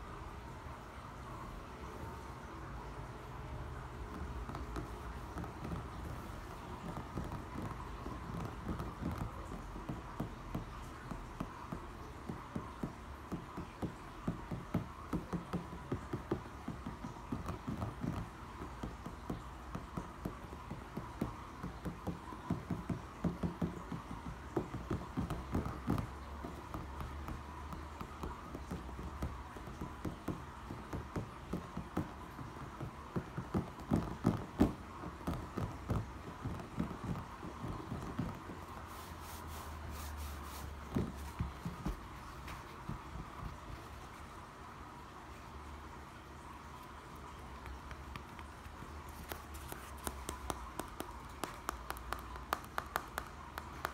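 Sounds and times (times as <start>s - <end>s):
fingertips tapping on brick: 3.7s - 44.3s, 46.8s - 53.9s.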